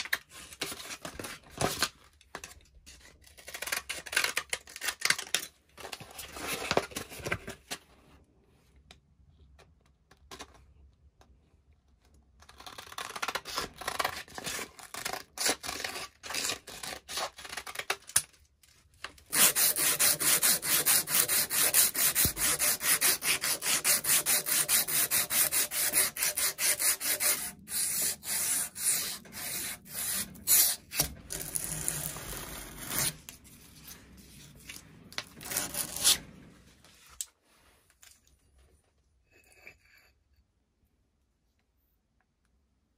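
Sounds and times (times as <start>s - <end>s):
sandpaper rubbing on steel pin: 19.3s - 31.0s.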